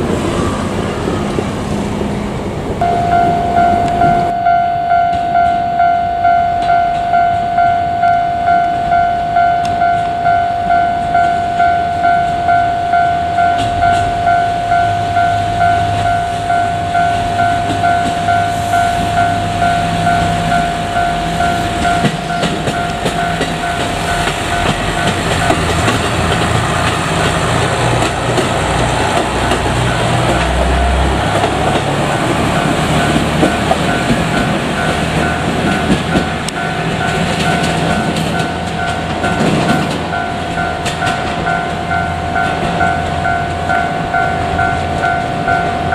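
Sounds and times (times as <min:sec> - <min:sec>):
railcar engine rumbling: 0:00.0 - 0:45.9
level-crossing warning bell: 0:02.8 - 0:45.9
wheels clattering over rails: 0:19.0 - 0:45.9.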